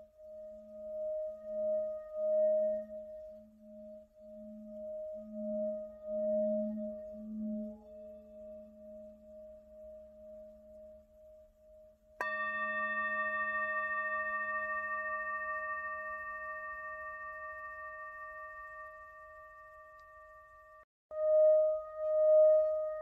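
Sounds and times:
singing bowl ringing: 12.2 - 23.0.

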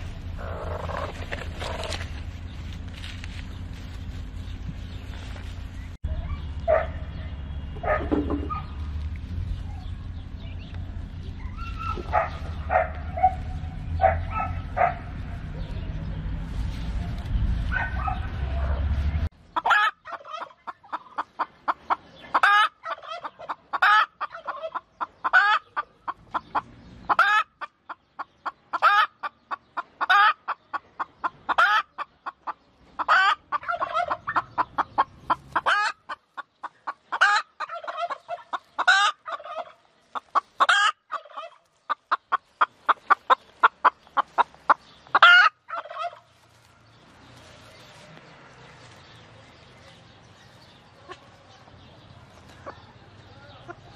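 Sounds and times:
hen clucking: 0.0 - 3.6, 19.5 - 48.1, 50.2 - 53.9.

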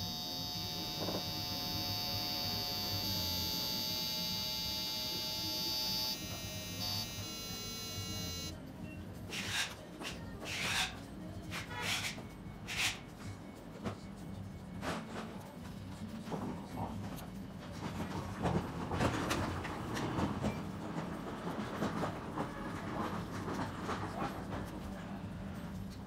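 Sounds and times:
high-pitched electronic buzz: 0.0 - 8.6.

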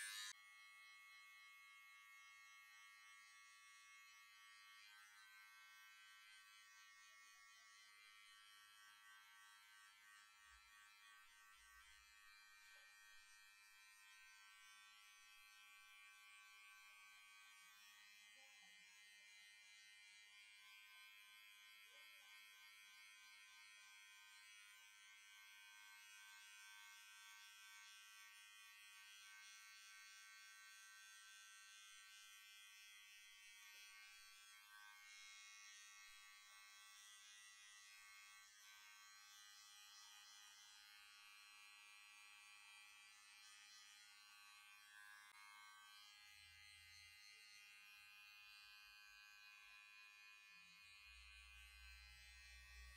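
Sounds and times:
electric hair clippers buzzing: 0.0 - 0.6, 19.7 - 52.9.

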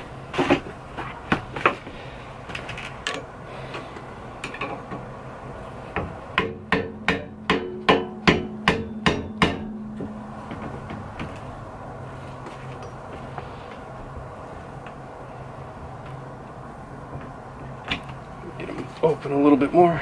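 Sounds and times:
hammer tapping on metal: 6.0 - 11.4.

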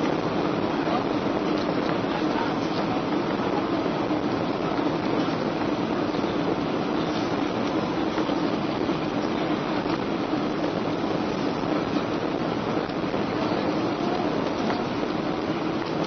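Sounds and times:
jet engine and airflow rushing: 0.0 - 16.0
steady low hum: 0.0 - 16.0.

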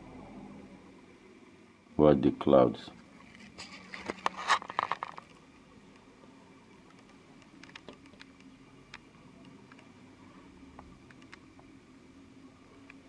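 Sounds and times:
camera handling scraping and clicking: 3.3 - 5.4
faint ticks: 10.7 - 11.7.

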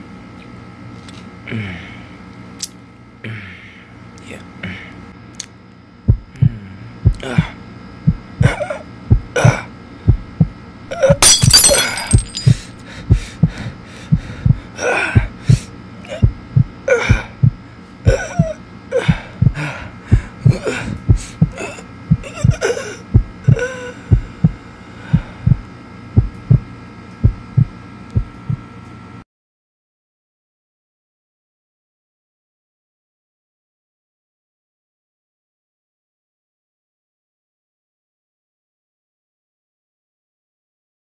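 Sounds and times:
heartbeat thuds: 6.1 - 6.3, 8.0 - 8.5, 9.1 - 9.4, 10.1 - 10.6, 13.1 - 15.5, 16.2 - 16.8, 17.4 - 24.6, 25.2 - 25.6, 26.2 - 28.7
heavy gasping breaths: 12.8 - 15.8, 18.9 - 21.8, 22.8 - 25.6.

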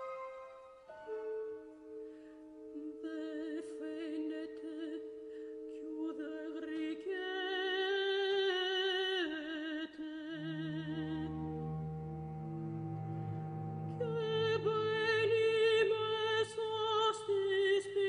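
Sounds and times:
soprano singing with vibrato: 2.6 - 11.7, 13.8 - 18.0
quiet held orchestral notes: 10.4 - 17.6.

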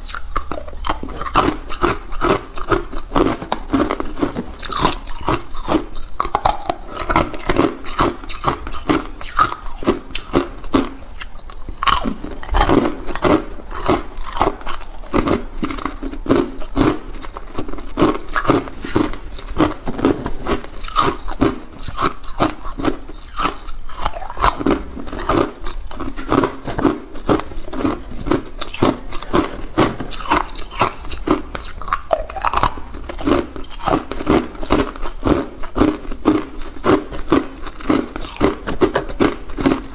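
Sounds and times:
ice cubes crunching when chewed: 0.0 - 39.9.

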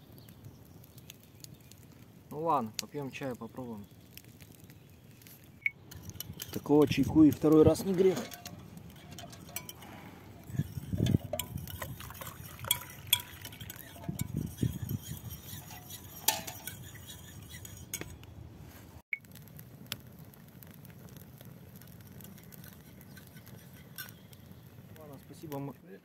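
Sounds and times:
teaspoons clinking against mugs: 5.9 - 18.1.

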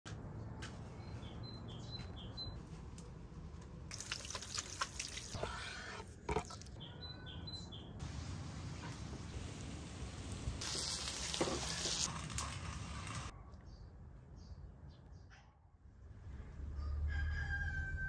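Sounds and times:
small birds chirping: 6.5 - 8.0
steady hiss: 8.0 - 12.2.

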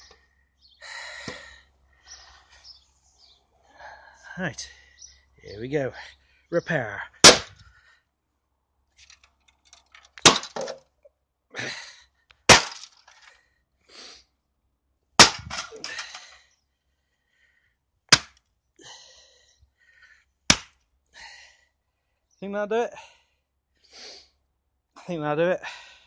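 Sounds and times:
breaking plastic crackling and rattling: 9.0 - 10.8.

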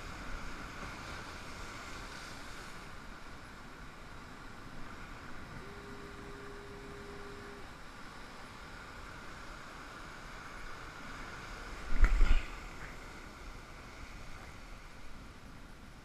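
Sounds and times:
surf washing over rocks: 0.0 - 16.0
rumbling thump on microphone: 11.9 - 12.5.

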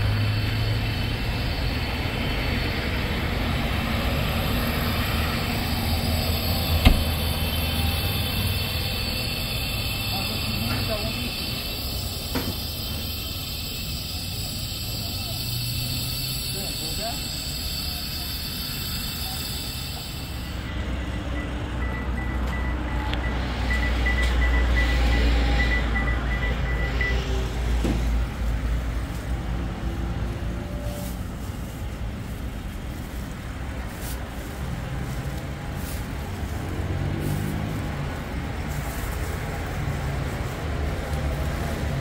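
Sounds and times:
heavy vehicle rumbling past: 0.0 - 17.4, 18.1 - 42.0
traffic hum: 0.0 - 42.0
quick beeps: 19.1 - 27.2.

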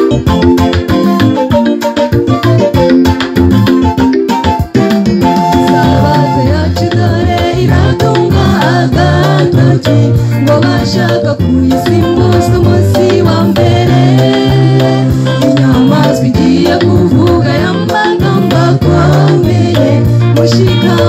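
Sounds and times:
bass line: 0.0 - 21.0
percussion beat: 0.0 - 21.0
choir singing gospel: 4.8 - 21.0.

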